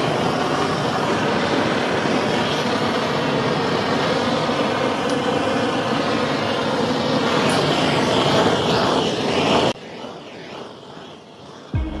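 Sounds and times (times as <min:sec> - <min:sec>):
gas torch hissing: 0:00.0 - 0:12.0.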